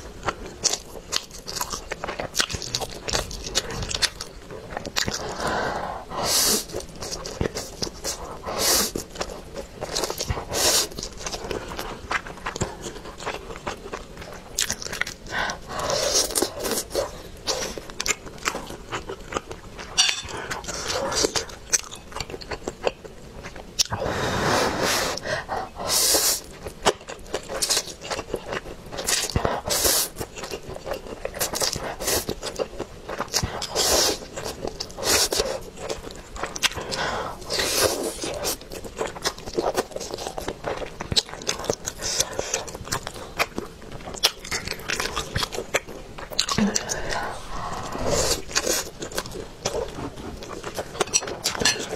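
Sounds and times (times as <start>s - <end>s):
slurping noodles: 24.0s - 26.5s, 46.7s - 49.1s.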